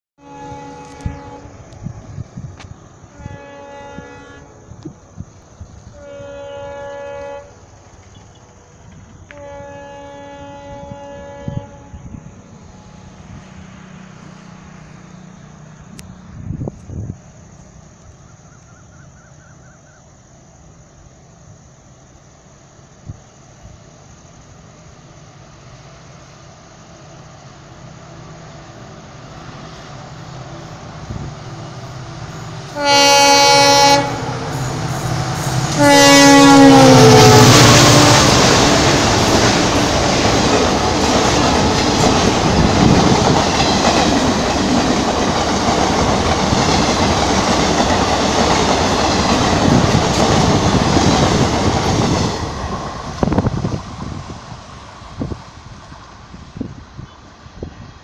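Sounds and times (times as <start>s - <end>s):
locomotive horn blasts: 0.2s - 1.6s, 3.1s - 4.7s, 5.9s - 7.6s, 9.3s - 12.3s, 32.8s - 34.7s, 35.6s - 38.4s
diesel locomotive rumble: 0.2s - 18.8s, 24.3s - 58.0s
train wheels clacking on rails: 36.6s - 54.7s.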